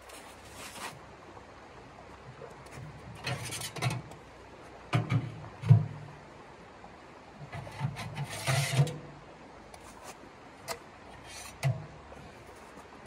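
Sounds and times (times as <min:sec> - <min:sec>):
creek water running: 0:00.0 - 0:13.0
metal scrape: 0:03.2 - 0:04.0, 0:07.5 - 0:09.1, 0:11.1 - 0:11.9
metal clanks and knocks: 0:04.9 - 0:06.0.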